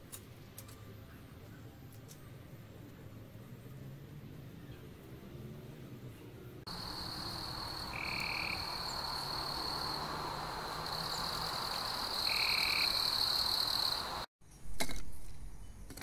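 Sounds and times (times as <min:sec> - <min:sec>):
frogs and insects trilling: 0:06.7 - 0:14.3.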